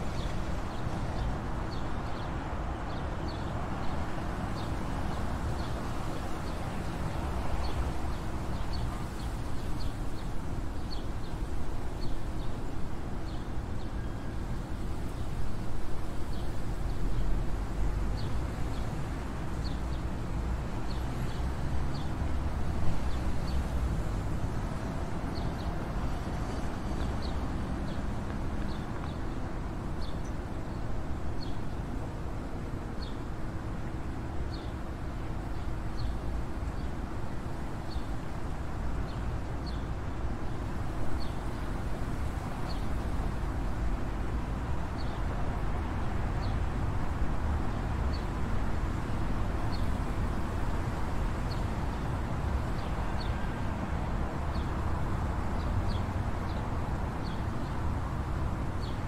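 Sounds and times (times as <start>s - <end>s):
sparrows chirping: 39.0s - 39.9s, 55.6s - 57.8s.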